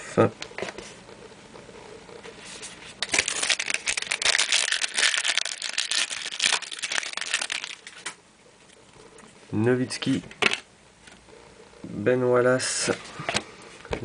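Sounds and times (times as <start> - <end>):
wrapper tearing and crinkling: 3.0 - 8.1.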